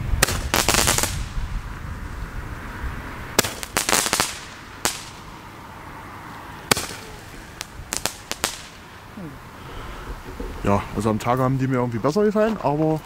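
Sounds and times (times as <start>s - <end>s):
fireworks cracking: 0.0s - 1.5s, 3.4s - 5.3s, 6.6s - 9.0s.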